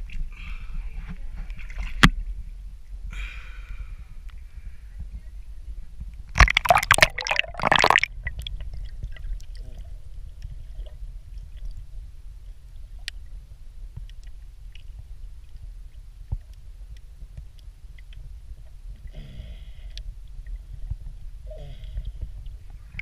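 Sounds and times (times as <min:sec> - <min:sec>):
low underwater rumble: 0:00.0 - 0:23.0
water splashing: 0:06.4 - 0:09.8.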